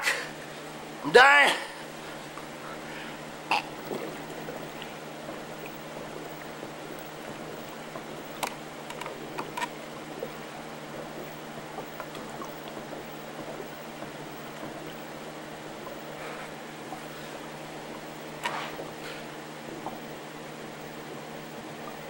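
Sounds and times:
background hiss: 0:00.0 - 0:22.0
faint constant hum: 0:00.0 - 0:22.0.

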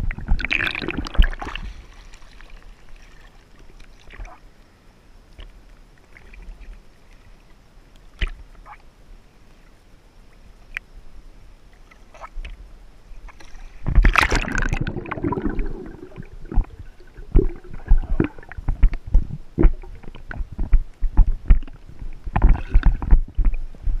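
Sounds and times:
faint lake water sounds: 0:00.0 - 0:24.0
muffled underwater sloshing and bubbling: 0:00.0 - 0:24.0
water thumping against camera: 0:13.4 - 0:24.0
loud water splash: 0:14.0 - 0:16.3.

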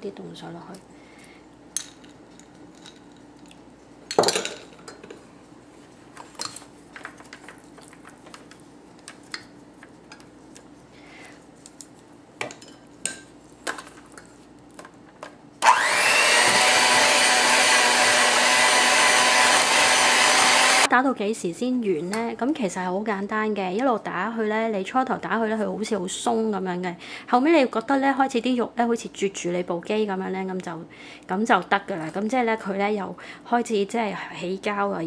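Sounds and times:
electric hand mixer whining: 0:15.6 - 0:20.9.

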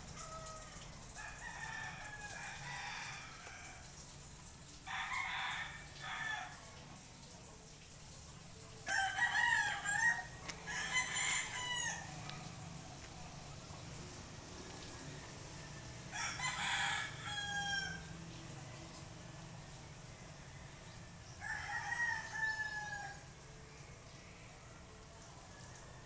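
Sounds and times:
roosters crowing: 0:00.1 - 0:03.9, 0:04.8 - 0:06.7, 0:08.8 - 0:18.2, 0:20.2 - 0:23.4.

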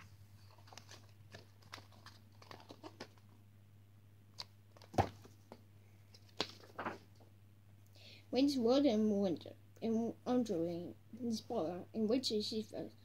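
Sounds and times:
faint low hum: 0:00.0 - 0:13.0
book pages turning: 0:00.4 - 0:03.3, 0:04.4 - 0:07.2.

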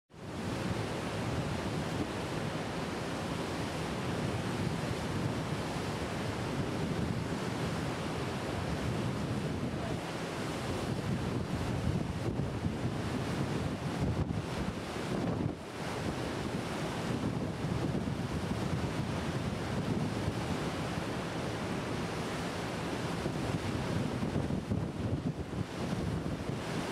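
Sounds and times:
river water rushing: 0:00.3 - 0:11.7, 0:18.4 - 0:24.3
wind buffeting microphone: 0:04.2 - 0:21.1, 0:23.0 - 0:26.9.

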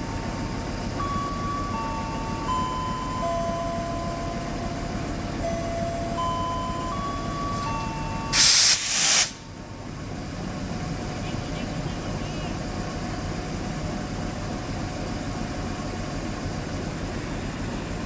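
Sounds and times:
two-tone air horn blast: 0:08.3 - 0:09.4
steady low rumble: 0:09.3 - 0:18.0.

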